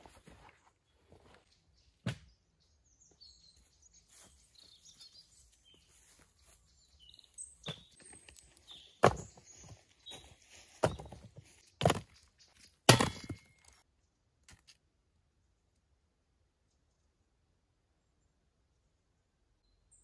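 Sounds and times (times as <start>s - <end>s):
small birds chirping: 0.2s - 14.7s.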